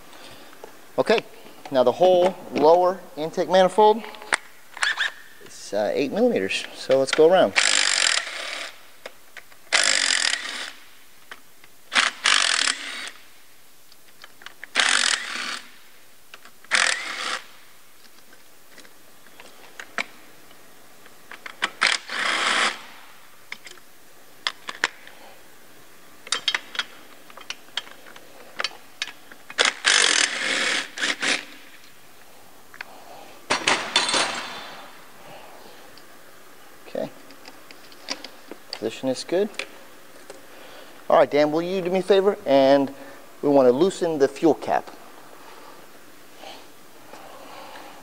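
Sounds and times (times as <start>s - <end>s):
cordless driver whirring: 16.7s - 17.4s, 29.6s - 31.5s.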